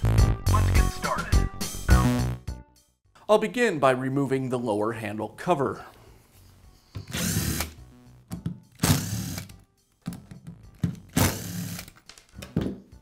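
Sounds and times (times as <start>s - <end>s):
cordless drill spinning: 7.0s - 7.8s, 8.8s - 9.6s, 11.1s - 12.0s.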